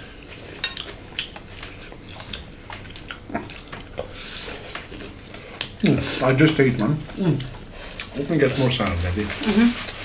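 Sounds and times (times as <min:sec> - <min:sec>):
wet chewing and lip-smacking: 0:00.3 - 0:05.8.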